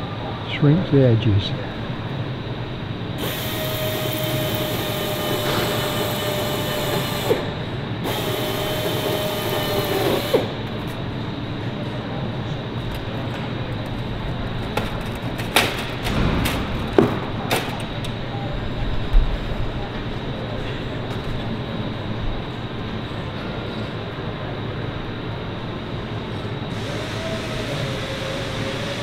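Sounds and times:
crimping machine whining: 3.1s - 11.5s, 26.6s - 29.0s
metal sheet clicks and knocks: 14.8s - 18.1s.

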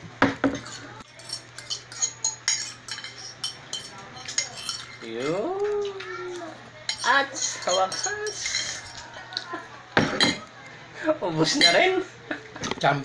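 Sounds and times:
fork scraping ceramic plate: 0.5s - 5.4s, 6.4s - 9.1s.

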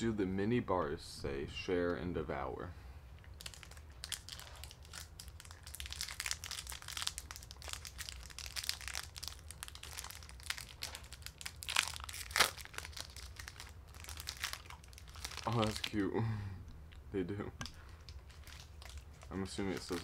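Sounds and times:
foil wrapper crinkling: 3.4s - 16.0s, 17.7s - 20.0s.

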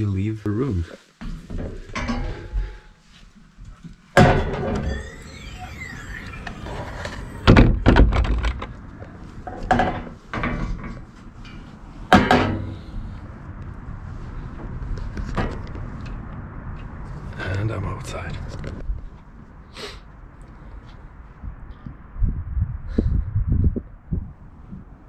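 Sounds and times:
door hinge squealing: 4.2s - 8.6s.

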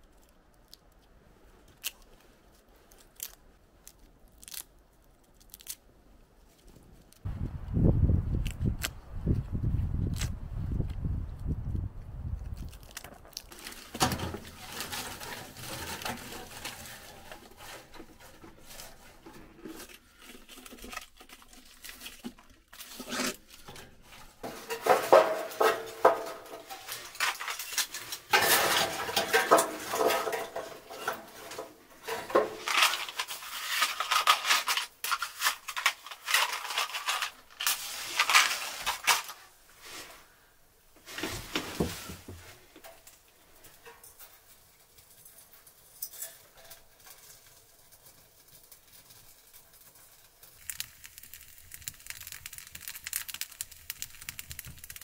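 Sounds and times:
kindling and metal clattering: 13.6s - 39.5s.

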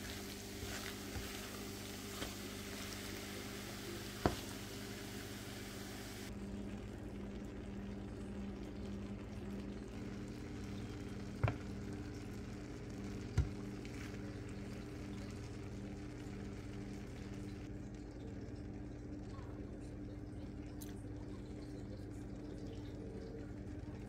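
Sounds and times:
eggs sizzling in a frying pan: 0.0s - 20.6s
steady low hum: 0.0s - 24.0s.

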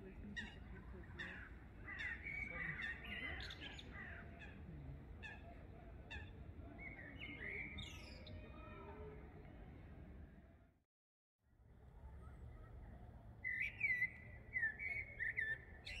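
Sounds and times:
songbirds chirping and singing: 0.1s - 4.6s, 6.2s - 8.8s, 13.4s - 16.0s.

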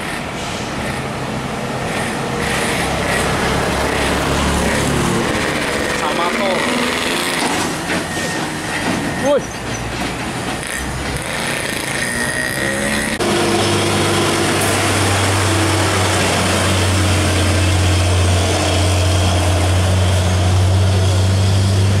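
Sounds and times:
road and traffic noise: 0.0s - 22.0s
truck diesel engine passing: 0.0s - 22.0s.

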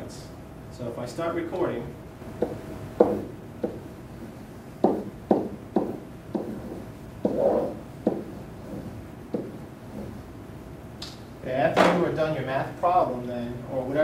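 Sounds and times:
pen knocks on whiteboard: 2.4s - 3.8s, 4.8s - 8.4s, 9.3s - 9.6s
pen scraping across whiteboard: 2.4s - 3.8s, 4.8s - 10.3s.

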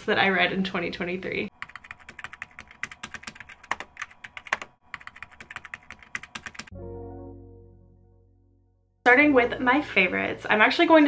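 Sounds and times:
soft sustained musical chord: 6.7s - 9.9s.

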